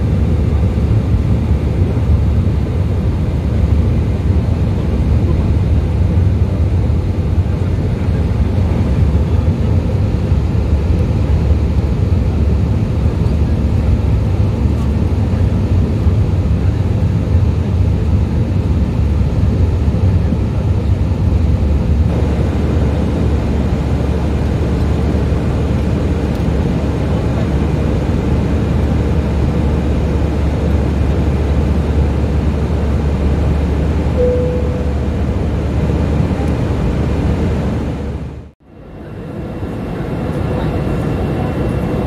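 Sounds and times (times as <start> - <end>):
jet cabin engine rumble: 0.0 - 42.0
faint steady hum: 22.1 - 38.0.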